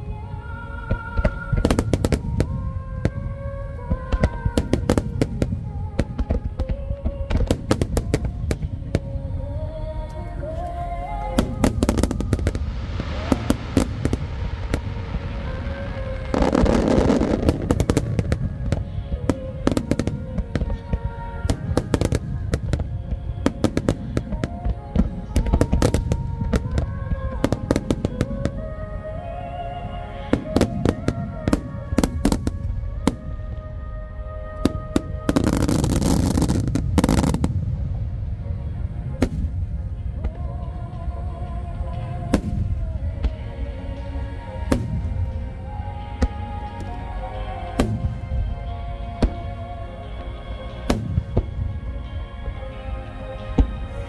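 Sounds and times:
rushing noise: 10.4 - 19.8.

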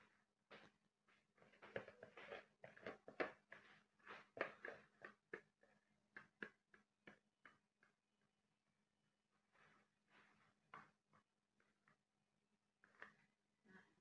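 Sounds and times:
faint clicks and scrapes: 0.6 - 8.4, 12.8 - 13.4.

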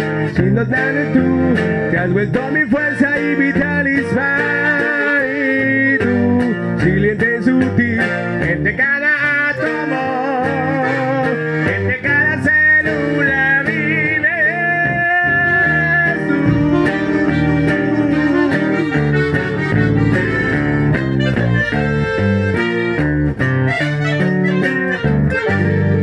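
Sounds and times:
button accordion: 0.0 - 26.0
strummed guitar: 0.0 - 26.0
saxophone: 9.2 - 14.2, 14.8 - 26.0.

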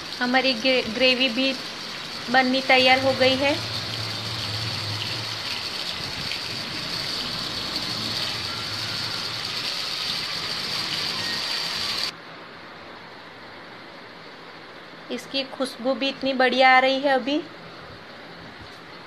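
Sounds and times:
food sizzling in hot oil: 0.0 - 12.1.

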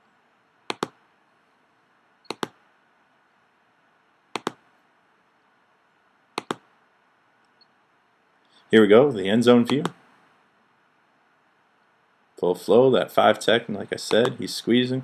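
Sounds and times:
computer mouse double clicks: 0.7 - 1.0, 2.3 - 2.6, 4.4 - 4.6, 6.4 - 6.6.

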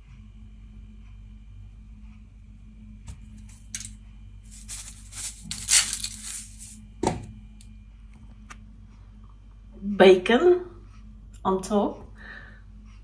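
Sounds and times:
spice shaker rattling: 3.3 - 3.9, 4.5 - 6.8.

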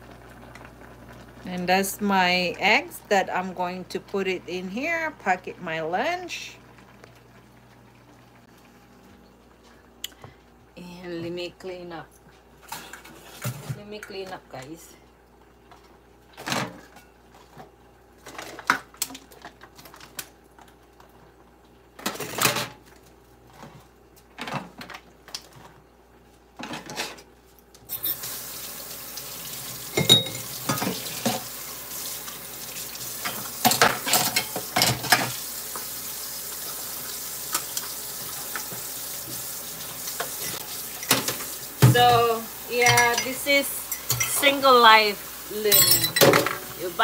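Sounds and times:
tap water running: 27.9 - 47.0
dishes clinking in a steel sink: 29.9 - 31.5, 33.2 - 35.4, 40.2 - 44.6, 45.6 - 47.0.

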